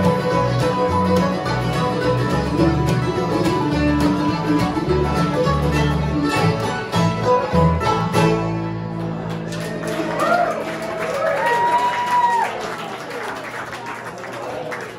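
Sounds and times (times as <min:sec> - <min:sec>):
accordion: 0:00.0 - 0:09.4
banjo: 0:00.0 - 0:09.8
mandolin: 0:00.0 - 0:10.1
acoustic guitar: 0:00.0 - 0:10.2
upright bass: 0:00.0 - 0:10.4.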